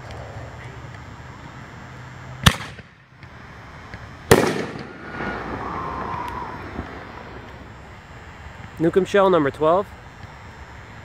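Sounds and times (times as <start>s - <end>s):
firework launch crack: 2.4s - 8.9s
firework shell bursting bang: 4.3s - 5.6s.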